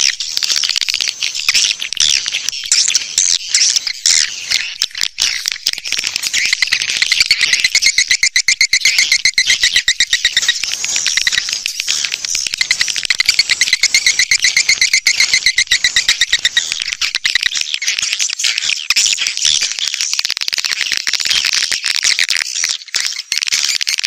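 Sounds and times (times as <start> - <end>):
swiftlets twittering: 0.0 - 19.1.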